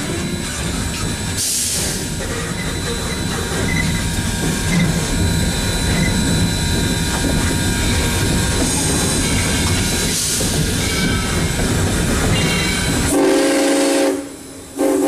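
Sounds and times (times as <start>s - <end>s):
locomotive rumble and clatter: 0.0s - 14.8s
steam hiss: 1.2s - 6.4s.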